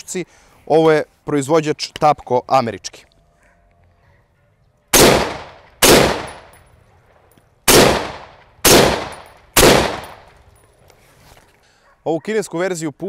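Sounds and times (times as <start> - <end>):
rifle shots with echo: 4.9 - 6.6, 7.7 - 10.3.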